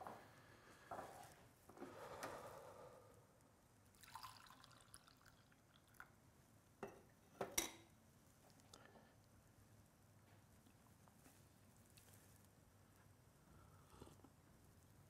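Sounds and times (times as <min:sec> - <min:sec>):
coffee pouring into mug: 0:03.9 - 0:06.2.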